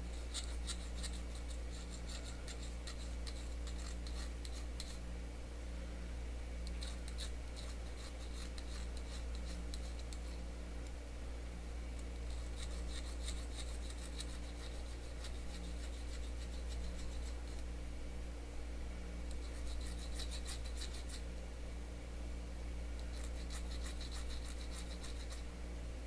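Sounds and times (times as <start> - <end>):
needle file scraping metal edge: 0.0 - 5.0, 6.7 - 10.4, 12.3 - 17.6, 19.3 - 21.2, 23.0 - 25.4.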